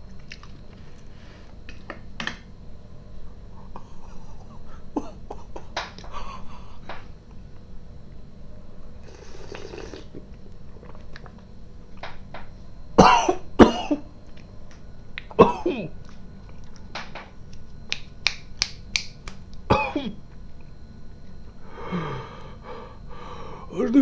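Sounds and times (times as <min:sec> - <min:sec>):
man coughing hard: 0:04.9 - 0:06.5, 0:13.0 - 0:14.1, 0:15.4 - 0:15.9, 0:19.7 - 0:20.2
slurping a sip: 0:09.0 - 0:10.2.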